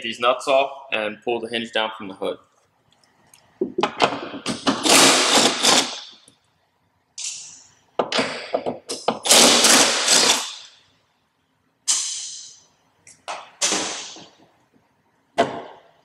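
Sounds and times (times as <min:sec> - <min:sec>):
impact wrench hammering: 0:03.6 - 0:06.2.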